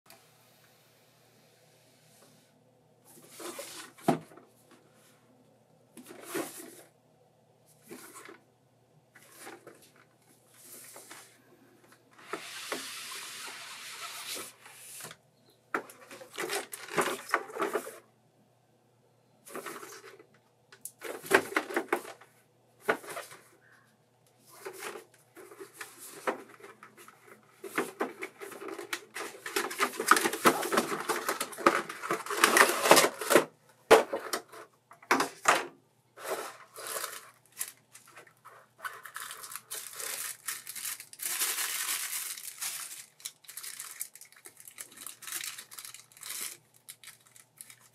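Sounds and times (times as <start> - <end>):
plastic blister tray crinkling: 24.6 - 47.9.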